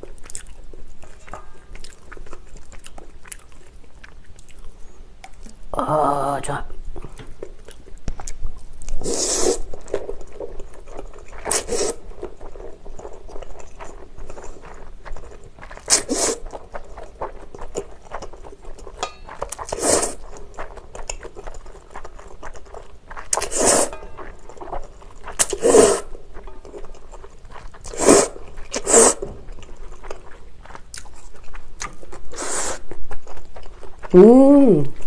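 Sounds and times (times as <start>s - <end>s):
faint wet chewing: 0.0s - 5.7s, 7.0s - 34.2s
noodles slurped: 19.5s - 24.0s, 24.6s - 26.1s, 26.8s - 29.4s.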